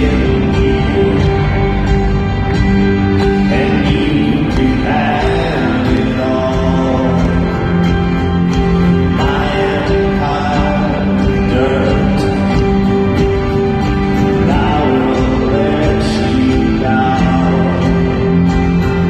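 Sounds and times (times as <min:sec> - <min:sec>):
live folk-rock band: 0:00.0 - 0:19.0.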